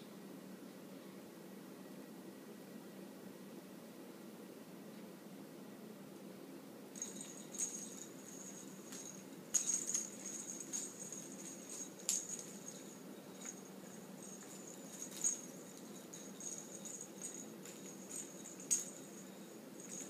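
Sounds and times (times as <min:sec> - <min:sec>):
faint steady high ring: 0:07.0 - 0:20.0.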